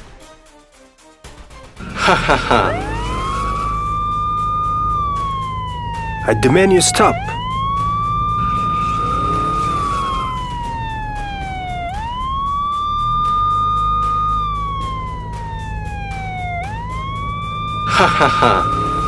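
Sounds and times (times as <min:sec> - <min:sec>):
police siren wailing: 0:01.8 - 0:19.0.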